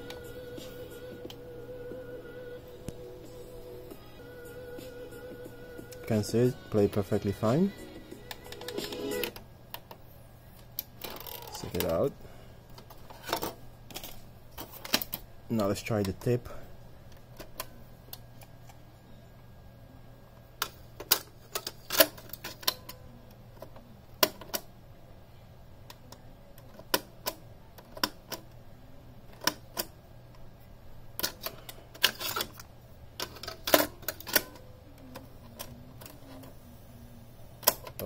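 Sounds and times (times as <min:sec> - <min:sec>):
low steady hum: 0:00.0 - 0:38.0
cassette deck keys clicking: 0:08.3 - 0:09.9.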